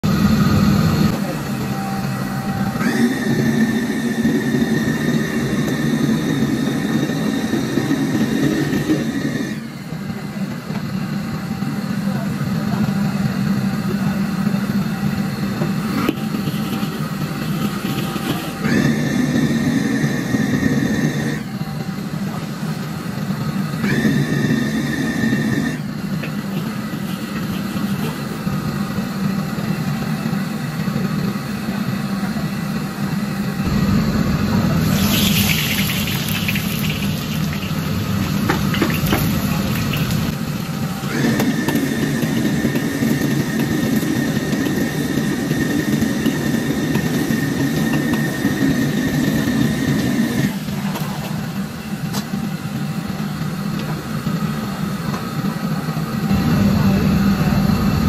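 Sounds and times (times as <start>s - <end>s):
gas wok burner roaring: 0.0s - 58.0s
hot oil sizzling: 34.8s - 41.1s.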